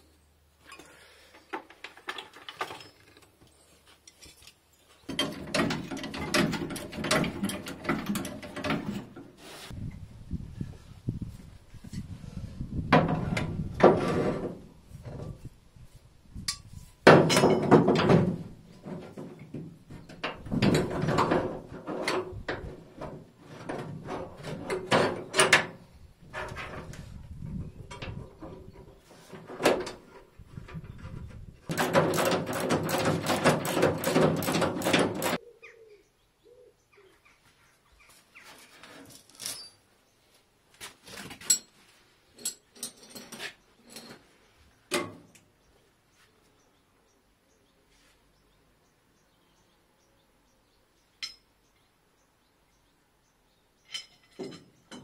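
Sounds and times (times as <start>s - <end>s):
metal knocks and clanks: 5.1s - 9.3s, 17.0s - 27.0s, 27.6s - 35.4s, 53.9s - 55.0s
rattling metal scrape: 20.2s - 35.4s.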